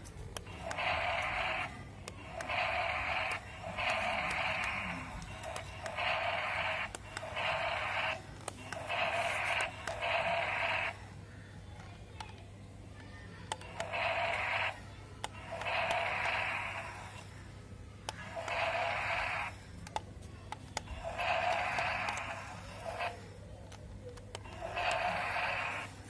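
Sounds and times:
toy dinosaur roar effects: 0:00.5 - 0:11.0, 0:13.7 - 0:17.3, 0:18.2 - 0:19.6, 0:21.0 - 0:23.3, 0:24.4 - 0:26.0.

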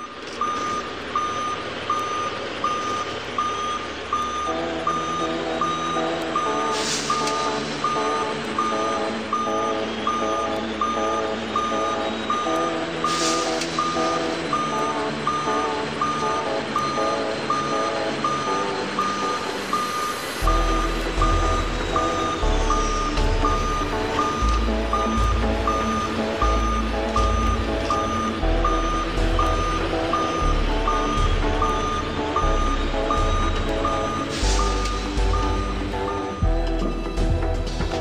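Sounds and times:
diesel engine running: 0:00.0 - 0:38.0
high warning beeps: 0:00.0 - 0:38.0
lower alarm beeping: 0:00.0 - 0:38.0
air hissing: 0:06.7 - 0:07.7, 0:13.1 - 0:13.8, 0:34.3 - 0:35.0.

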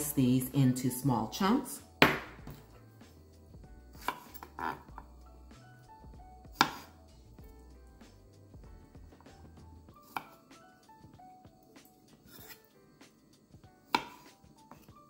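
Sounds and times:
quiet background music: 0:00.0 - 0:15.0
knife knocking on cutting board: 0:02.0 - 0:02.6.

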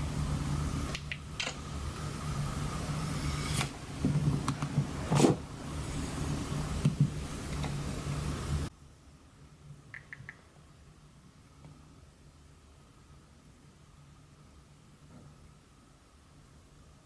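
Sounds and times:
low mechanical hum: 0:00.0 - 0:17.0
knocks and thumps of moving about: 0:03.6 - 0:05.5, 0:06.8 - 0:07.8.

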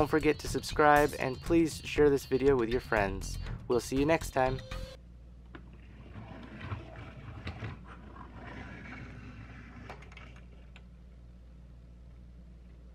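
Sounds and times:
plastic toy wheels rolling on table: 0:05.7 - 0:10.8.

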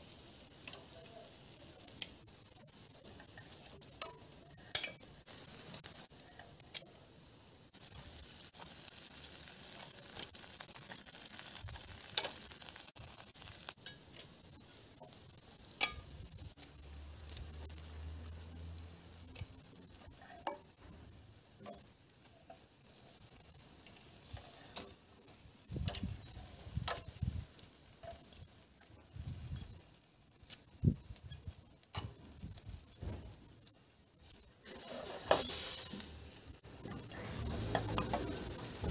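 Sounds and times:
faint sizzling hiss: 0:00.0 - 0:38.9
metal tongs clicking on grill grate: 0:00.4 - 0:01.1, 0:01.8 - 0:06.9, 0:09.0 - 0:14.4, 0:15.0 - 0:20.6, 0:21.6 - 0:28.5, 0:30.3 - 0:32.2.

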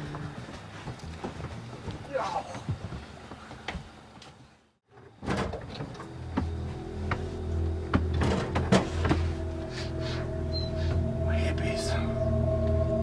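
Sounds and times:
background music drone: 0:05.8 - 0:13.0.

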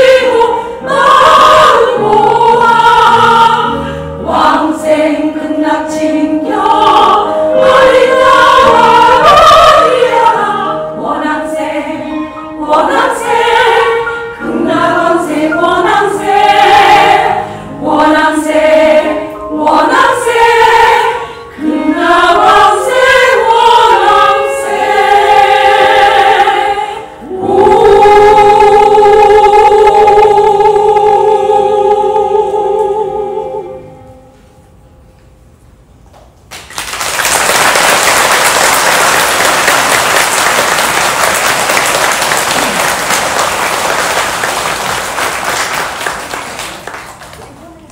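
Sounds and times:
women's choir singing: 0:00.0 - 0:34.1
audience applause: 0:36.5 - 0:47.6.

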